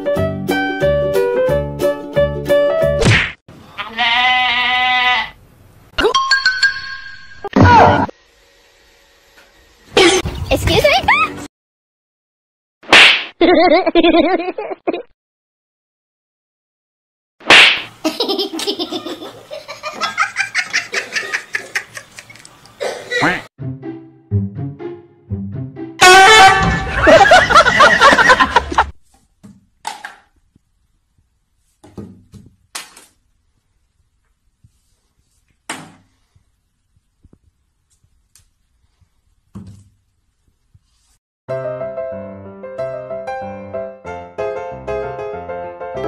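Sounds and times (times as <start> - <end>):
person laughing heartily: 13.4 - 15.1, 18.0 - 23.5, 26.6 - 28.9.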